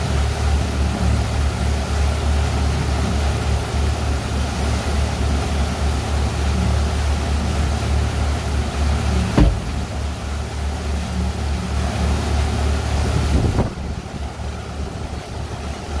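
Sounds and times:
boat engine rumble: 0.0 - 16.0
wind and water hiss: 0.0 - 16.0
sharp knock: 9.4 - 9.9.

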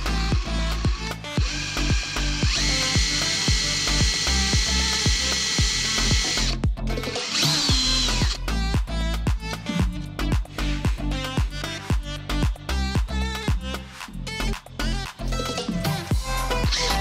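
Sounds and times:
cordless drill boring metal: 0.0 - 8.6, 16.5 - 17.0
background music with beat: 0.0 - 17.0.

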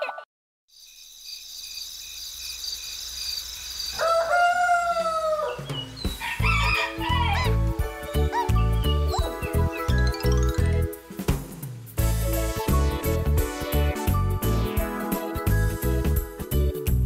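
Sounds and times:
rooster crowing: 3.9 - 7.6
children's music with chimes and bass: 6.4 - 17.0.

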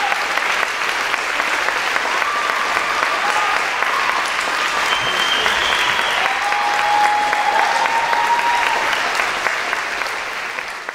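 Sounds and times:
audience clapping: 0.0 - 10.9.

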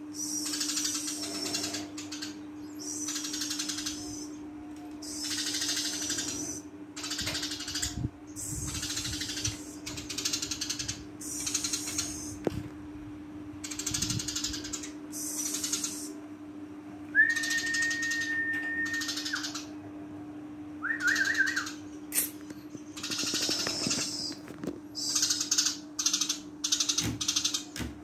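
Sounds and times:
low steady hum: 0.0 - 28.0
sparrow buzzy chattering: 0.1 - 4.4, 5.0 - 12.4, 13.6 - 16.2, 17.3 - 19.8, 21.0 - 27.8
short wavering whistle: 17.1 - 19.3
clear whistle: 17.2 - 19.4, 20.8 - 21.7.

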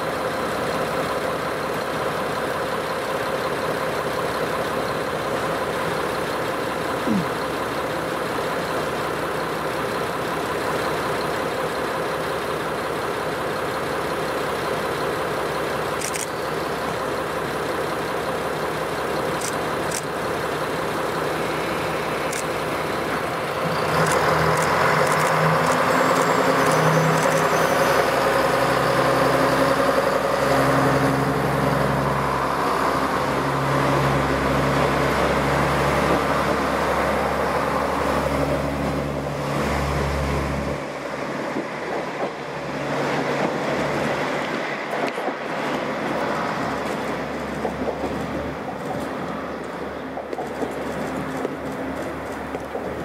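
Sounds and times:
diesel railcar engine idling: 0.0 - 53.0
engine revving: 23.6 - 36.8.

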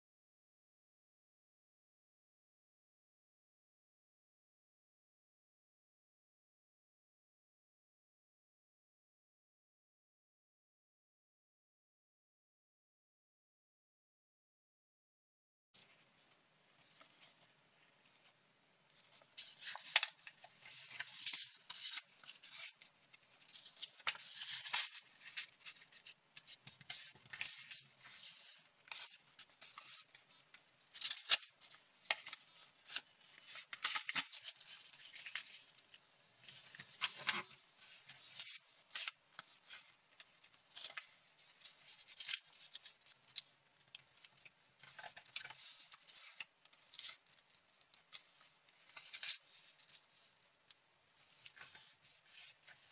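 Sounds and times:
paper rustling and crinkling: 15.8 - 52.9.

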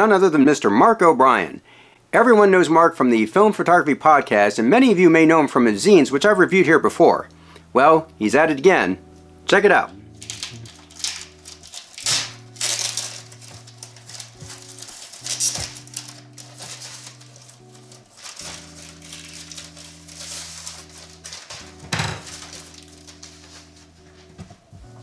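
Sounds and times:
quiet background music: 0.0 - 25.0
plastic mailer tearing and crinkling: 10.2 - 23.9.

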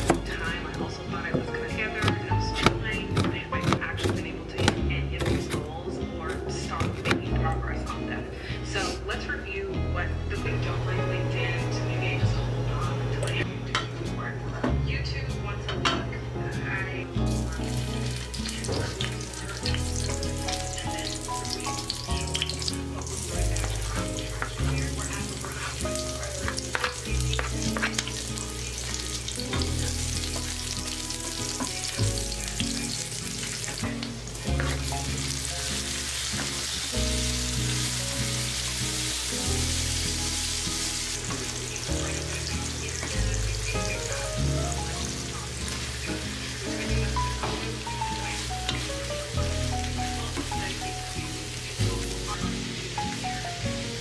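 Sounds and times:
background music with low notes: 0.0 - 54.0
onion sizzling in hot oil: 17.2 - 54.0.

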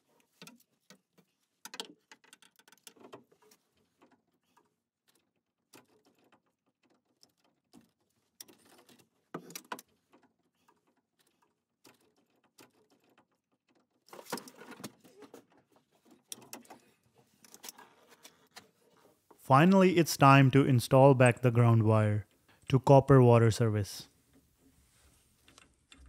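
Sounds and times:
tool and gloves clicking and rustling: 0.0 - 19.4.

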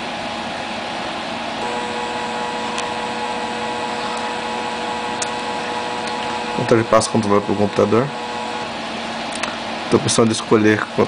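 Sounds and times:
stepper motor whining tone: 1.6 - 10.3.

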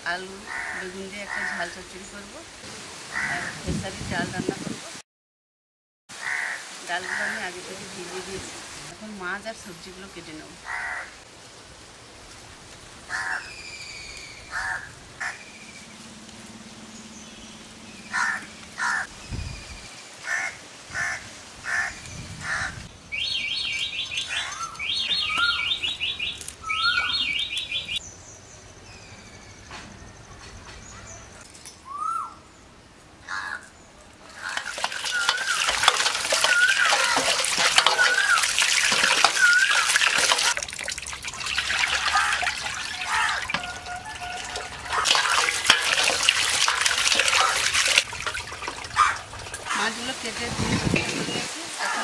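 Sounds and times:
crows cawing: 0.4 - 1.6, 3.1 - 3.6, 6.2 - 7.4, 10.6 - 11.2, 13.1 - 13.5, 14.5 - 15.5, 18.1 - 19.1, 20.2 - 22.8, 33.2 - 33.7, 34.3 - 40.4, 41.8 - 47.8, 48.9 - 49.8
small birds chirping: 23.1 - 33.0, 33.6 - 40.2
water splashing in a bowl: 34.3 - 51.9.

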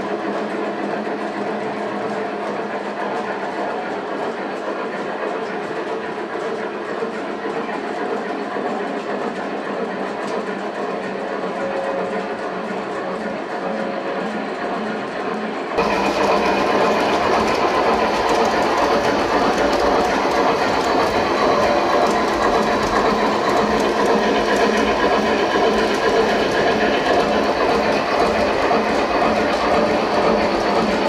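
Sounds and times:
wheels clicking over track: 15.8 - 31.0.

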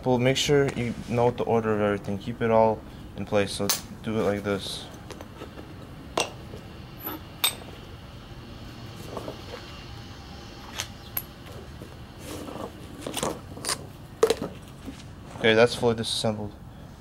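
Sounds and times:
metal parts clinking on asphalt: 7.0 - 7.7.

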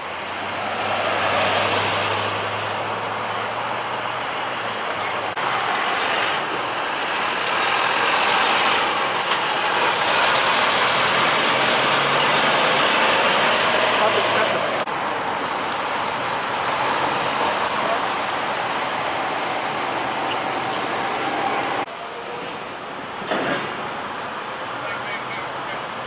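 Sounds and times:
truck driving past: 0.0 - 15.3
road traffic noise: 0.0 - 26.0.

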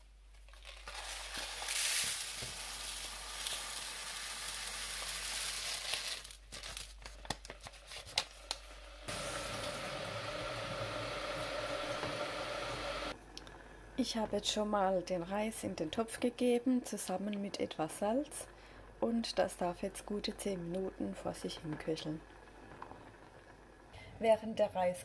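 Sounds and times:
rice pouring into a sieve: 0.8 - 6.3
kitchen tap running: 8.4 - 13.5.

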